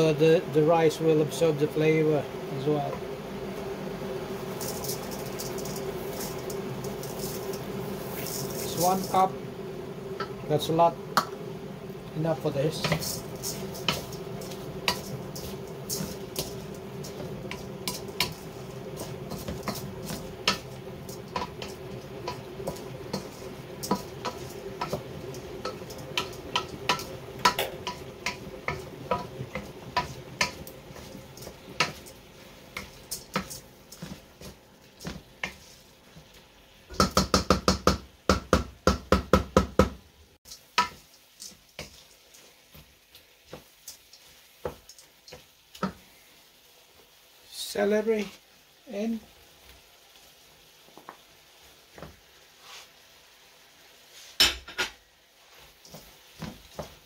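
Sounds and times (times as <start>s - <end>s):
wooden spatula scraping metal pan: 4.4s - 9.4s, 12.2s - 36.2s.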